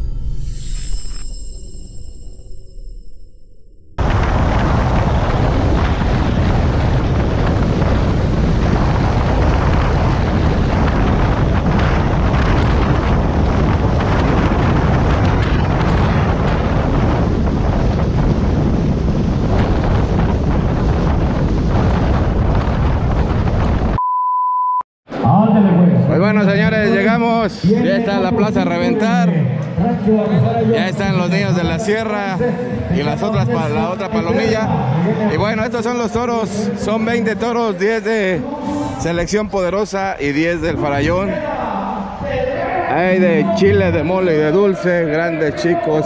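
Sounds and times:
short beep tone: 0:00.0 - 0:03.9, 0:24.0 - 0:24.8
wind buffeting microphone: 0:04.0 - 0:24.0, 0:29.9 - 0:46.0.

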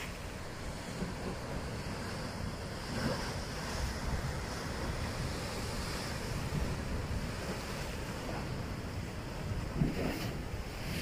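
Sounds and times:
sea waves breaking on rocks: 0:00.0 - 0:11.0
wind buffeting microphone: 0:00.0 - 0:11.0.

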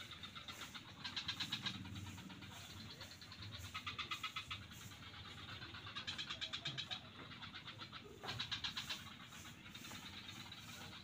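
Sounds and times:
frogs rattling calls: 0:00.0 - 0:11.0.

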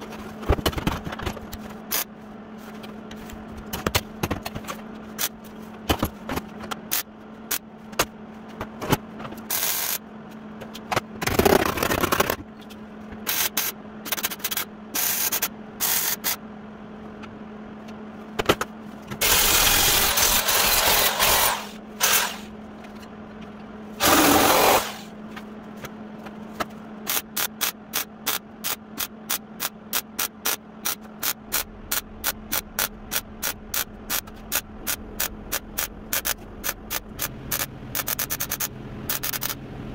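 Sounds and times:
mig welder buzzing: 0:09.4 - 0:10.0, 0:13.2 - 0:16.4, 0:19.2 - 0:22.6, 0:24.0 - 0:25.2, 0:27.0 - 0:39.6.

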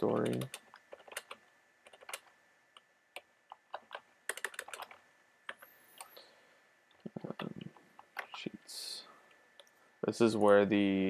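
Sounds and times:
typing on keyboard: 0:00.0 - 0:02.3, 0:03.2 - 0:06.1, 0:07.3 - 0:08.4.

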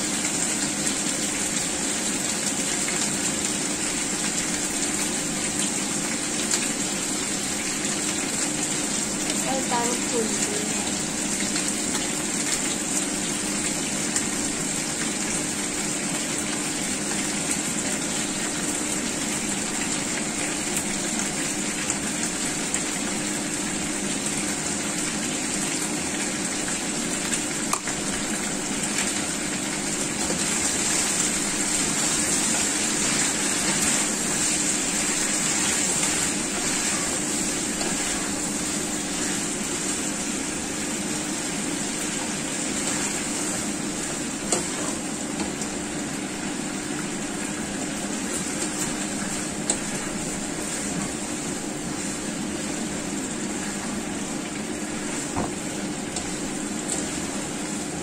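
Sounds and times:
food sizzling in hot oil: 0:00.0 - 0:58.0.

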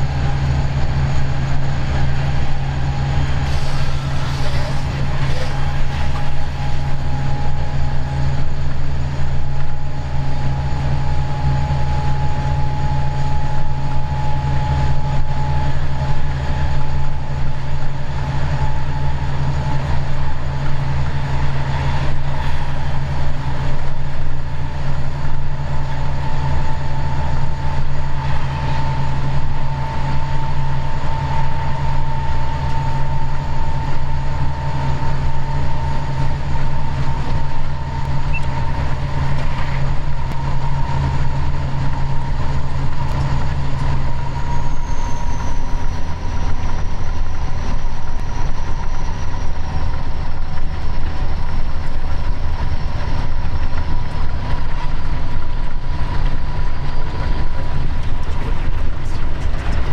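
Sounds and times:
locomotive engine hum: 0:00.0 - 0:59.9
rail noise: 0:00.0 - 0:59.9.

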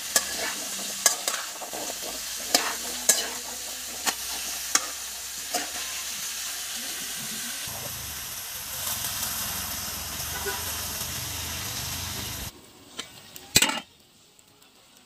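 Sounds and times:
squash sizzling in a pan: 0:00.0 - 0:14.0.

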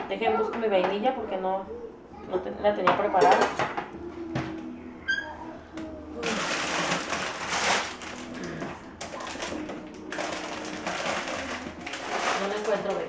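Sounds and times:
packages and jars rustling: 0:06.2 - 0:13.0.

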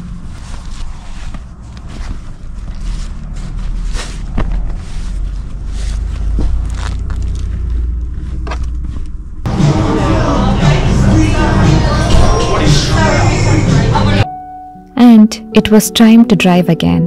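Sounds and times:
cloth rustling: 0:00.0 - 0:09.5
steady low rumble: 0:00.0 - 0:14.2.

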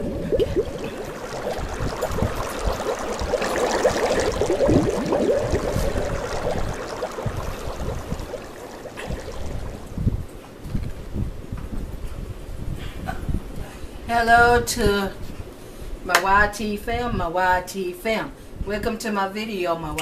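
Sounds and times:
water bubbling and gurgling: 0:00.0 - 0:10.3.

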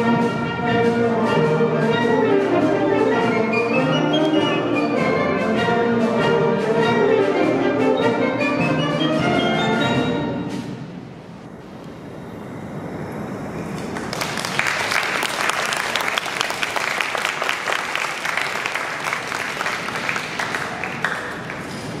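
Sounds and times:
audience applause: 0:13.7 - 0:22.0.

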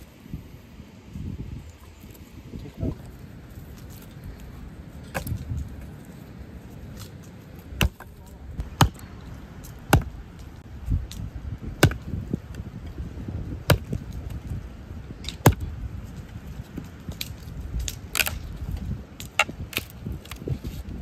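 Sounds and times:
axe chopping wood: 0:07.8 - 0:09.1, 0:09.7 - 0:10.2, 0:11.1 - 0:12.2, 0:13.6 - 0:14.4, 0:15.3 - 0:15.7, 0:17.1 - 0:18.5, 0:19.2 - 0:20.5.

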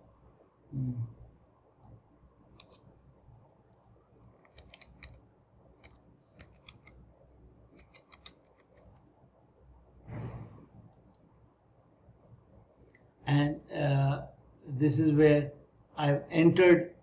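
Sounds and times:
computer keyboard keystrokes: 0:02.6 - 0:02.8, 0:04.4 - 0:05.2, 0:05.8 - 0:07.0, 0:07.8 - 0:08.9
mouse clicks: 0:02.6 - 0:02.8, 0:04.5 - 0:05.2, 0:05.8 - 0:07.0
short low sound: 0:10.1 - 0:10.7.

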